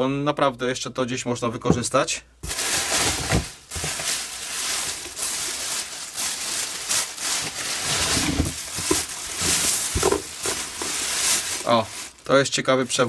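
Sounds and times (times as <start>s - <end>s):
plastic bag rustling: 2.4s - 13.0s
soft knocks of contents: 8.2s - 11.0s.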